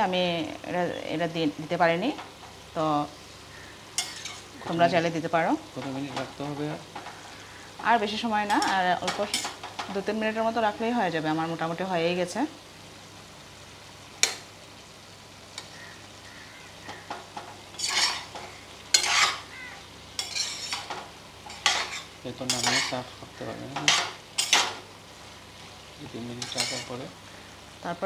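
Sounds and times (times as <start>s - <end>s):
food sizzling: 0.0s - 28.0s
metal spatula scraping a pot: 4.0s - 4.5s, 17.0s - 19.5s, 20.2s - 23.1s, 23.8s - 24.8s, 26.4s - 27.0s.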